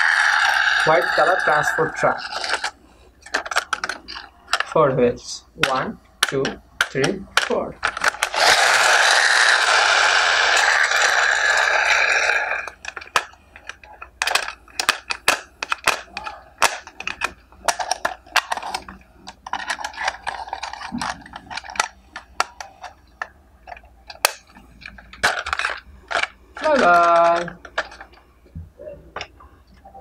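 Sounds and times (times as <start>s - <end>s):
plastic toy clicking and knocking: 0.0s - 4.8s, 5.6s - 28.2s.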